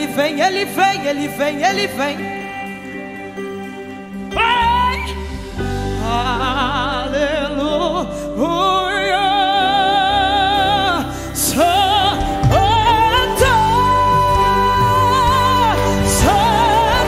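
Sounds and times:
low instrumental backing: 0.0s - 17.0s
woman singing with vibrato: 4.3s - 17.0s.

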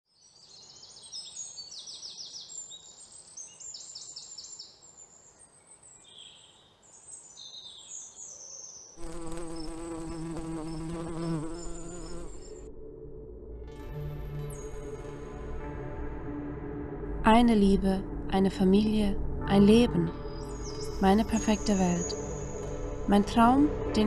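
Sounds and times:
insects chirping in rapid trills: 9.0s - 12.6s
slow ambient music: 10.2s - 24.0s.

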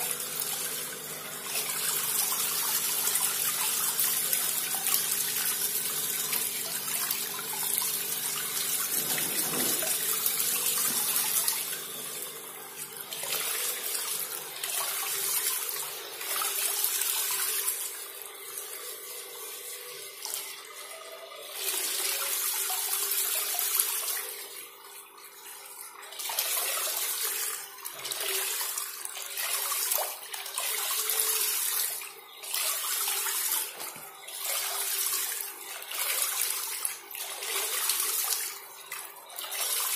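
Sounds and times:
pump motor hum: 0.0s - 39.9s
water spraying and splashing: 1.4s - 12.0s.

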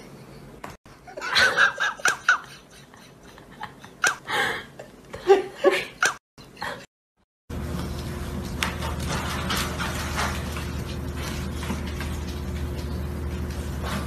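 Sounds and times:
person laughing and giggling: 0.9s - 6.9s.

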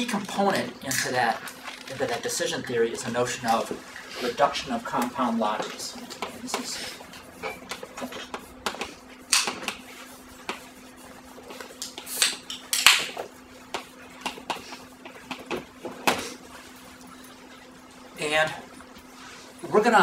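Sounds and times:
chalk tapping on blackboard: 5.0s - 16.2s
chalk scratching on blackboard: 5.2s - 12.3s.

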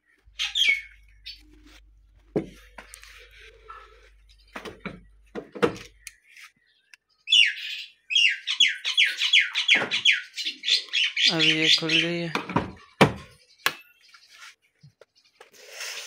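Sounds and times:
bird chirping rapidly: 0.1s - 1.5s, 5.9s - 14.5s.

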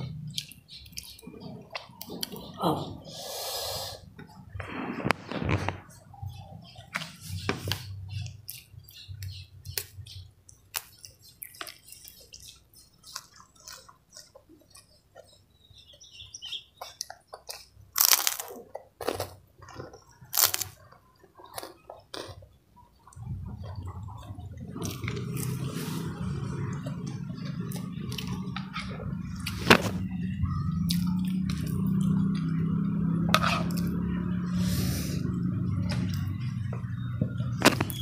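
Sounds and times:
person chewing crispy cracker: 10.5s - 15.4s, 16.4s - 23.2s.

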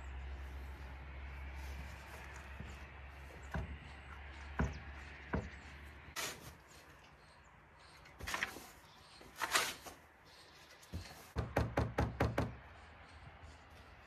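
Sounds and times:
scraping rustles: 7.8s - 11.4s
knocking on wooden frame: 11.4s - 12.6s.

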